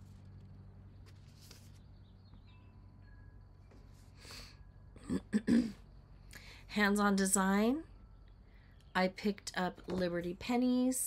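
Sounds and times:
paper clicks and rustling: 0:00.0 - 0:01.9
steady low hum: 0:00.0 - 0:11.0.

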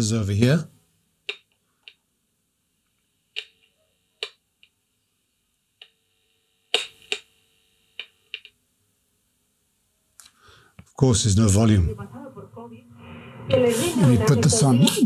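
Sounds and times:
sharp clicks and pops from speaker: 0:01.2 - 0:02.0, 0:03.3 - 0:04.8, 0:06.7 - 0:07.3, 0:08.0 - 0:08.6.

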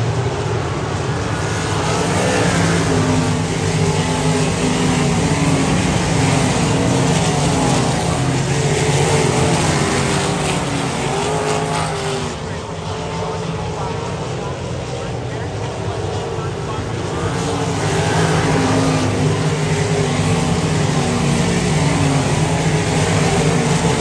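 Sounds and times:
racing car engines: 0:00.0 - 0:24.0.

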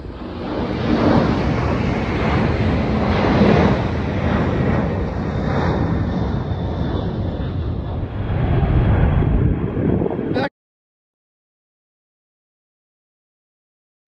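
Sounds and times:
jet engines rumbling at climb: 0:00.0 - 0:10.5.

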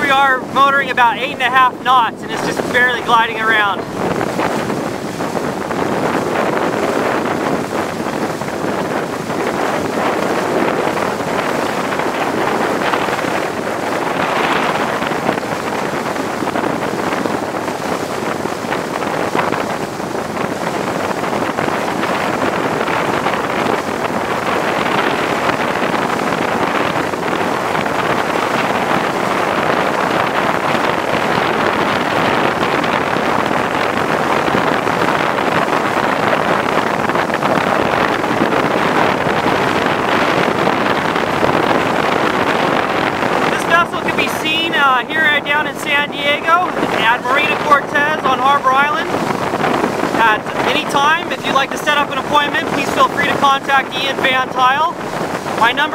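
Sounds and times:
boat rushing through water: 0:00.0 - 0:55.9
wind buffeting microphone: 0:00.0 - 0:55.9.

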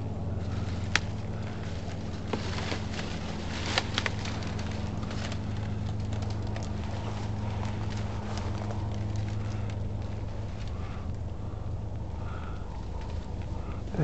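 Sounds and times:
dry grass crackling underfoot: 0:00.0 - 0:14.0
steady low hum: 0:00.0 - 0:14.0.

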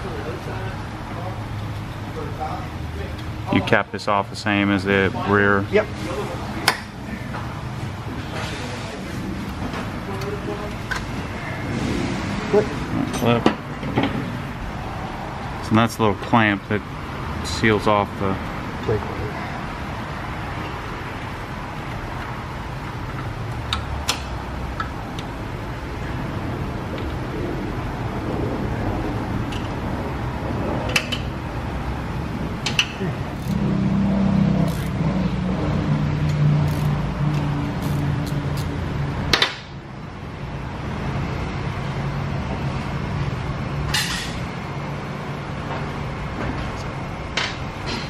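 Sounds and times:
steady low hum: 0:00.0 - 0:48.0
wrench clicking on metal fitting: 0:36.7 - 0:38.7.

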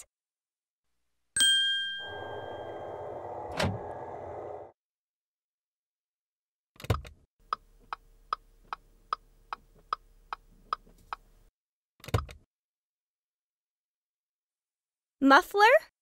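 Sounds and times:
turn signal ticking: 0:07.4 - 0:11.5.

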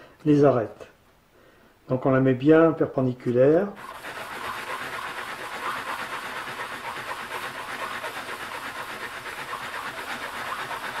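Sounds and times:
scraper rasping on abrasive paper: 0:03.8 - 0:11.0.

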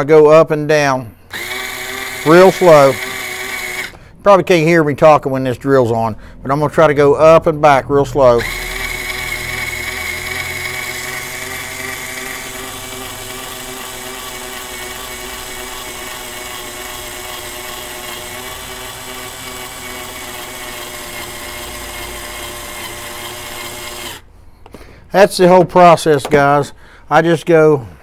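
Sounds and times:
cutter trimming brass case: 0:01.3 - 0:04.0, 0:08.4 - 0:24.2
cordless drill running: 0:01.3 - 0:04.1, 0:08.4 - 0:24.3.

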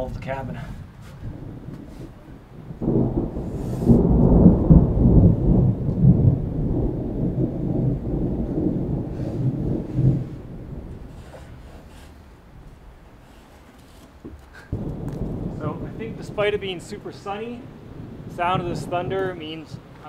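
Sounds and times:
thunder rumbling: 0:00.0 - 0:13.5, 0:14.5 - 0:20.0.

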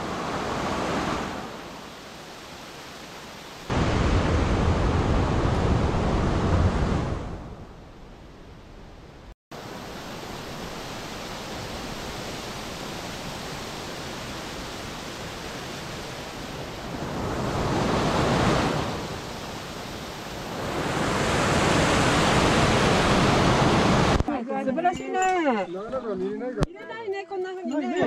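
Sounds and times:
stream rushing over boulders: 0:00.0 - 0:07.4, 0:09.5 - 0:24.3.

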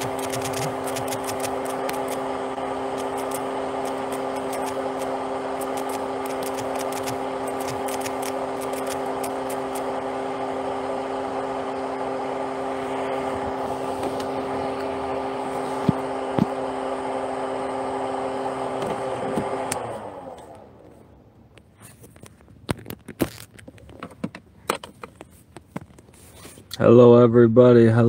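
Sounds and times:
car running hum: 0:00.0 - 0:28.0.

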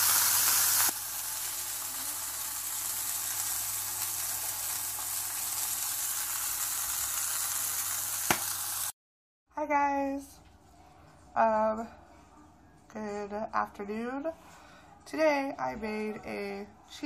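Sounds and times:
patty sizzling in a pan: 0:00.0 - 0:09.0.

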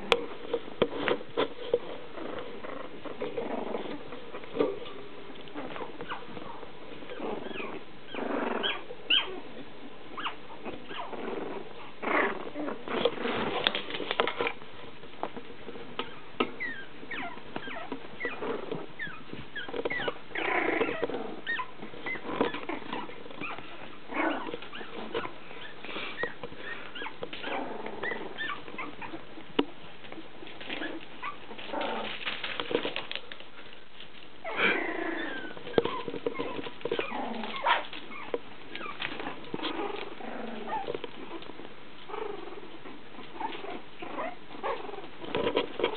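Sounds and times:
puppies growling and squeaking: 0:00.0 - 0:14.6, 0:15.2 - 0:45.9
puppy squealing: 0:07.1 - 0:09.4, 0:16.0 - 0:18.4, 0:19.0 - 0:29.2.

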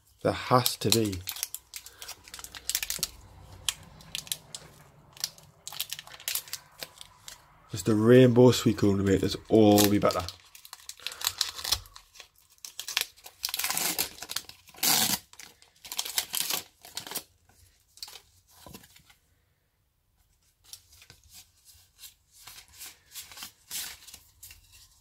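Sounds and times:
foil wrapper ripping and crinkling: 0:00.2 - 0:07.9, 0:08.8 - 0:17.4
cards sliding and fanning: 0:20.6 - 0:25.0.

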